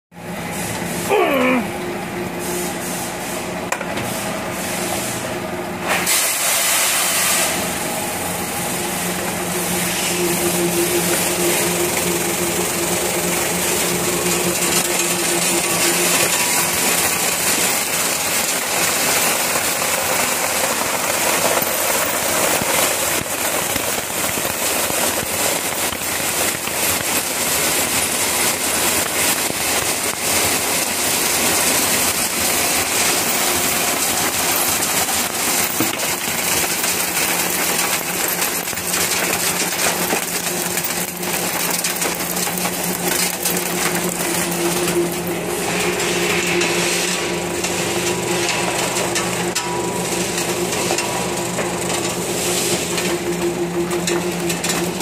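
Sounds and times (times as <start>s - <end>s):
motor hum: 7.8s - 55.0s
broken glass clattering: 13.7s - 45.2s.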